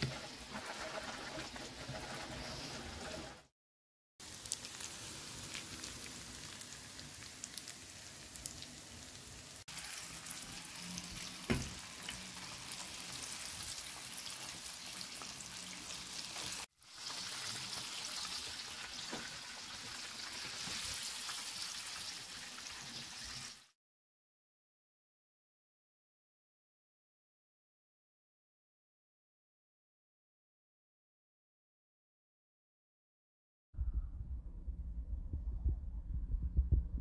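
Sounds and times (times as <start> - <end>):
food sizzling in frying pan: 0.0 - 3.5, 4.2 - 23.8
knock: 11.5 - 11.8.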